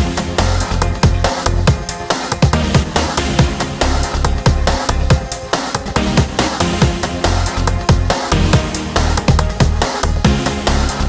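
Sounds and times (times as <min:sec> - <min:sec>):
electronic music with heavy bass: 0:00.0 - 0:11.0.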